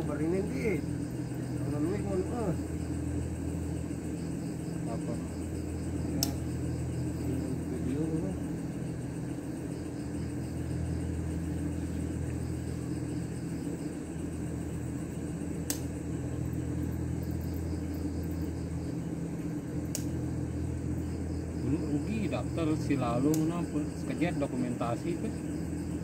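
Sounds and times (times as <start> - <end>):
low machine hum: 0.0 - 26.0
sharp click: 6.2 - 6.4, 15.6 - 15.9, 19.9 - 20.2, 23.2 - 23.6.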